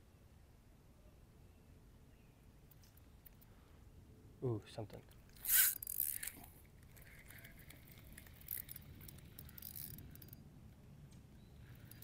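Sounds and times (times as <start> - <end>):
fishing reel clicking and rattling: 5.3 - 10.4, 11.6 - 12.0.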